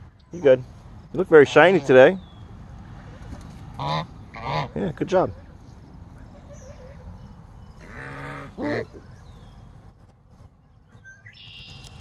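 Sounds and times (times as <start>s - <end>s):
goose honking: 3.8s - 4.8s, 7.8s - 9.0s.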